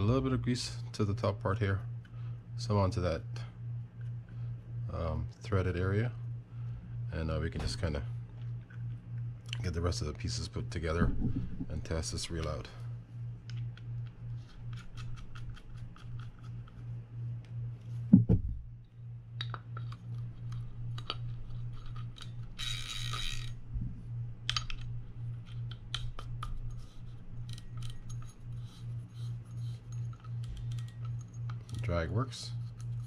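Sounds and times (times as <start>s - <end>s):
thump: 18.1s - 18.5s
fishing reel parts clicking: 19.4s - 23.6s, 24.4s - 28.8s, 29.6s - 32.0s.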